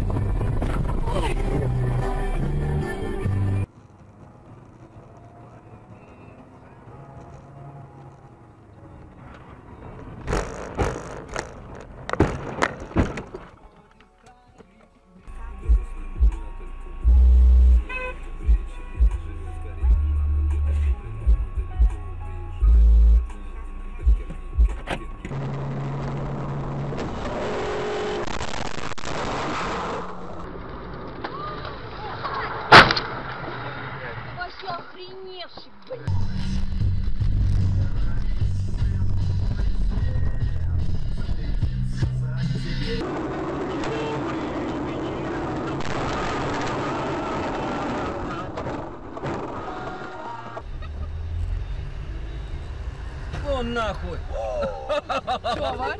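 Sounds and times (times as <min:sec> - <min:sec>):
car engine and road hum: 0:00.0 - 0:55.9
collision bangs and crunches: 0:10.2 - 0:13.6, 0:45.8 - 0:50.6.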